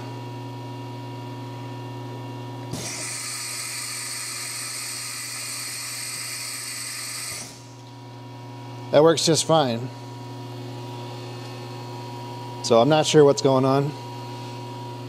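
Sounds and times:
compressed air hissing: 2.7 - 7.7.

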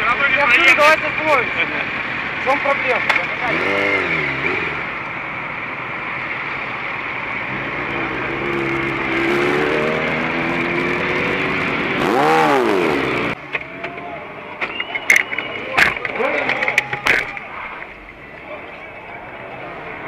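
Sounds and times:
street noise: 0.0 - 20.0
motorcycle engine revving: 2.9 - 5.2, 7.5 - 13.4.

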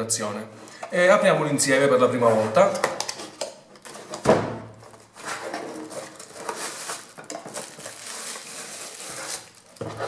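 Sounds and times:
cardboard and plastic rustling: 3.8 - 10.0
cardboard flap ripping open: 6.0 - 10.0.

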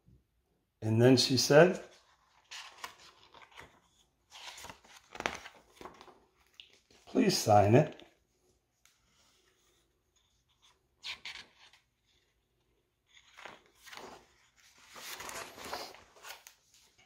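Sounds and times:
book pages rustling: 1.8 - 17.0.

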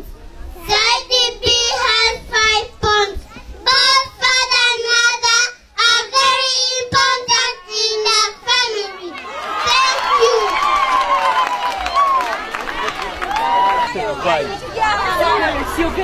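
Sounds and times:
children singing into microphones: 0.0 - 9.1.

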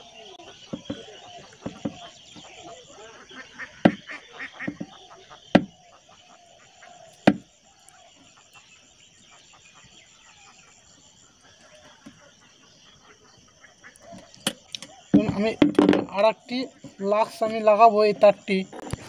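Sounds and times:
handling noise: 0.7 - 2.6, 4.7 - 5.0, 14.1 - 17.0.

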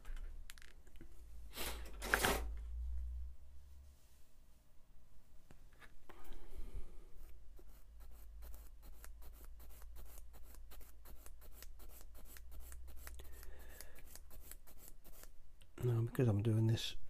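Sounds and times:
sanding stick scratching plastic: 7.6 - 15.3.

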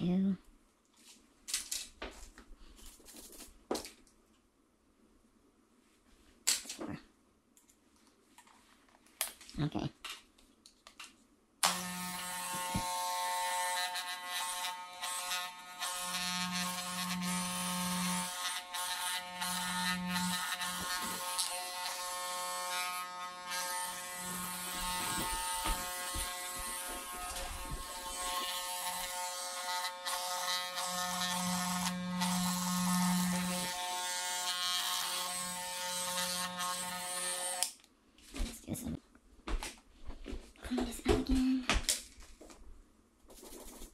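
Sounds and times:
electric hair clippers buzzing: 11.6 - 37.8.

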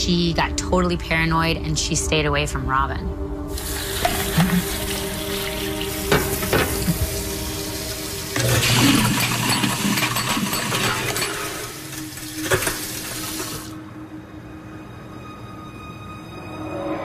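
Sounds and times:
water running from tap into basin: 3.5 - 13.8.

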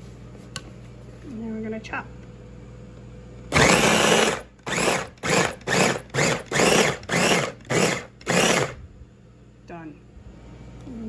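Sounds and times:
food chopper motor pulsing: 3.5 - 8.8.

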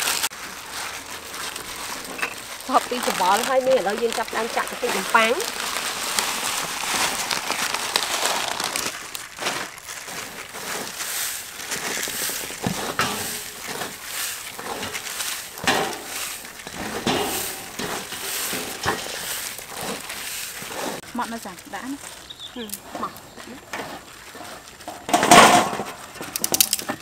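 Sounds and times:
breadcrumbs rustling in metal tray: 0.0 - 27.0.

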